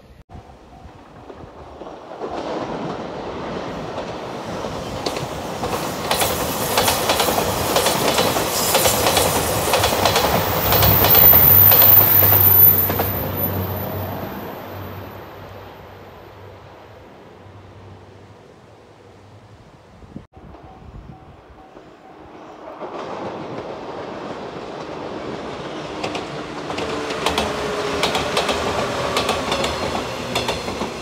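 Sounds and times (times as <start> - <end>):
train wheels clattering over rail joints: 3.9 - 13.2, 26.0 - 31.0.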